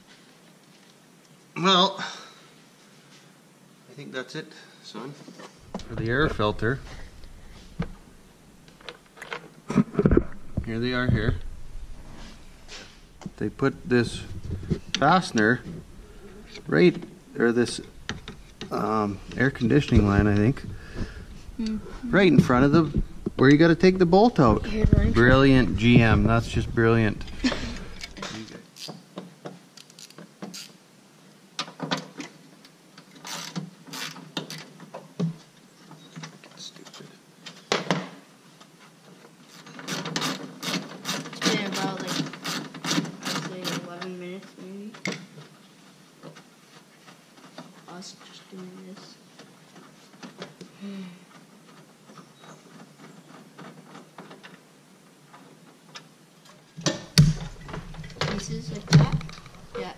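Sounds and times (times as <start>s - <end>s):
tool scraping: 9.7s - 28.4s.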